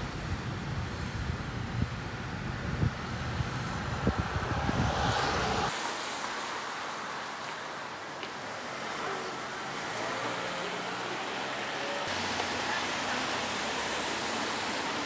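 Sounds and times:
wind buffeting microphone: 0.0s - 5.8s
city traffic hiss: 0.0s - 15.0s.

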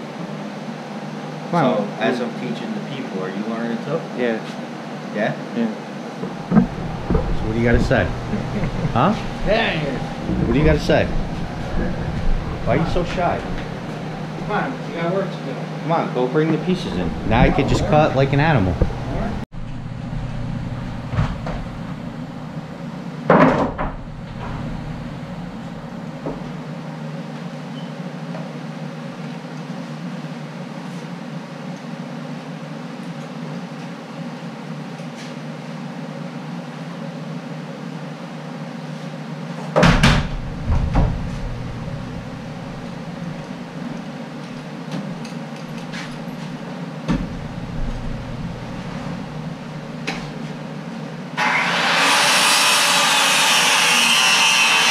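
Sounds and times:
low hum: 6.4s - 15.1s, 16.6s - 22.8s, 23.8s - 26.3s, 40.2s - 44.1s, 45.6s - 50.4s
wooden boards knocking: 6.5s - 8.7s.

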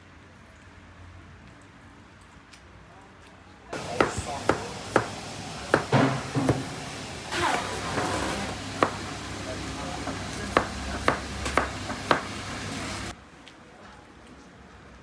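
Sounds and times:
knife chopping on cutting board: 3.8s - 6.8s, 8.8s - 9.2s, 10.0s - 12.6s
background voices: 3.8s - 13.1s.

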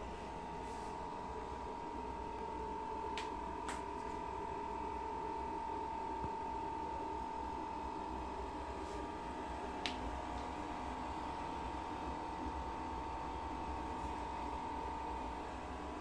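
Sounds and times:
air heater whine and rumble: 0.0s - 16.0s.

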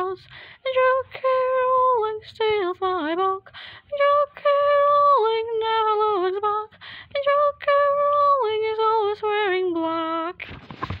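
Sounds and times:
woman singing unaccompanied: 0.0s - 10.4s
short breath: 3.5s - 3.9s, 6.7s - 7.1s.

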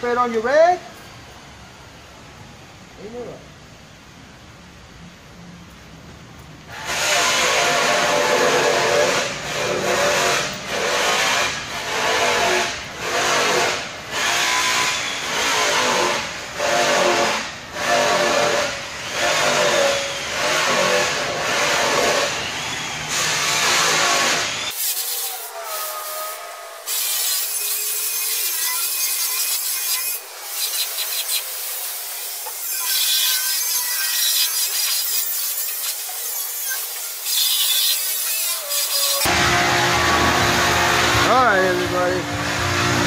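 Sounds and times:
rag rubbing on metal grill: 6.8s - 19.8s.

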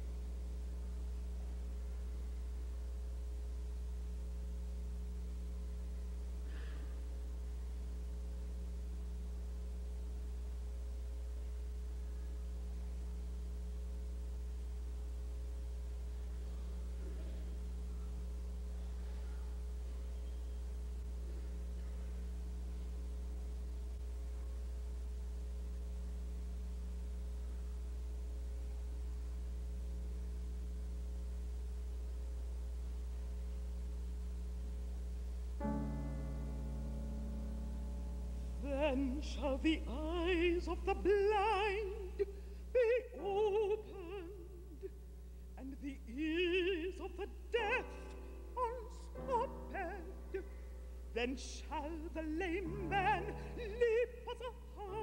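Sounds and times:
faint small sounds: 0.0s - 51.2s
faint high buzz: 0.0s - 55.0s
low electrical hum: 0.0s - 55.0s.

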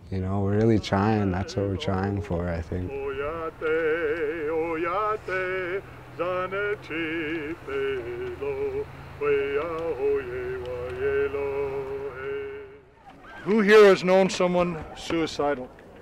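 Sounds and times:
low steady hum: 0.0s - 14.5s
person singing with vibrato: 0.5s - 12.8s.

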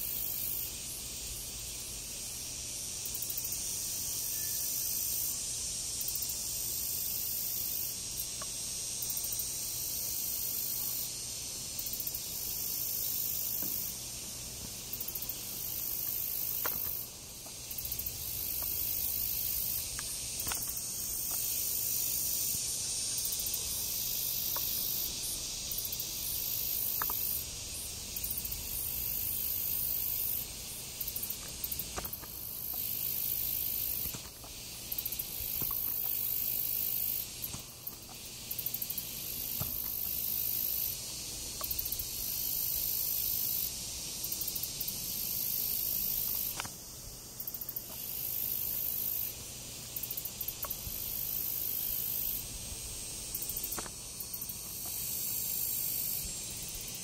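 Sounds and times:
insects chirring: 0.0s - 57.0s
faint ticks: 8.2s - 9.4s, 24.4s - 25.1s, 26.7s - 27.4s, 39.5s - 42.0s, 46.2s - 46.8s, 47.7s - 50.8s.

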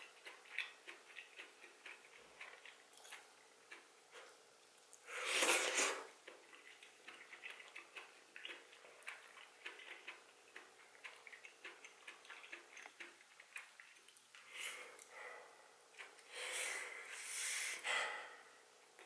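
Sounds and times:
wet chewing: 0.0s - 15.2s
loud slurp: 5.1s - 6.1s.

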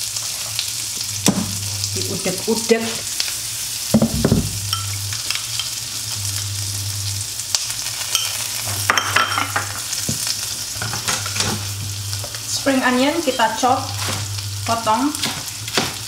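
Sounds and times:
food sizzling in frying pan: 0.0s - 16.0s
knock: 4.0s - 4.5s
spoon clinking bowl and jar: 4.7s - 5.8s, 8.1s - 9.7s.

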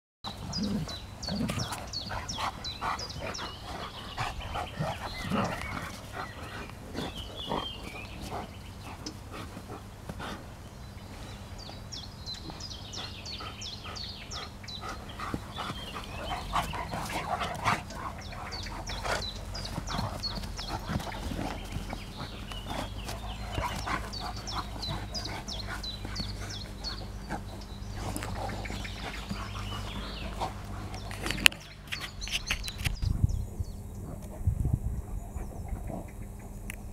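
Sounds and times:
dogs vocalizing: 0.3s - 32.9s, 33.8s - 36.7s
dogs scuffling: 14.9s - 32.9s.

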